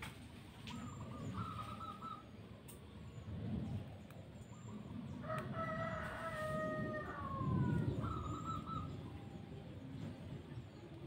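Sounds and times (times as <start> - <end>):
rooster crowing: 5.2 - 8.7.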